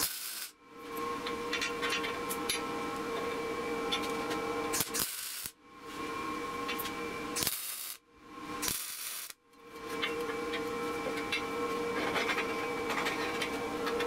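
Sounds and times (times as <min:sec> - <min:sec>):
welding arc crackle: 0:00.0 - 0:00.6, 0:04.7 - 0:05.6, 0:07.4 - 0:08.0, 0:08.6 - 0:09.4.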